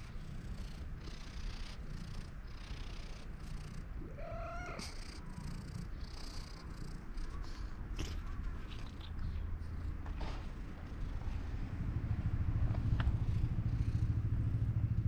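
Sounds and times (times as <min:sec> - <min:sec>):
cat purring: 0:00.0 - 0:14.7
cat meowing: 0:04.0 - 0:05.0.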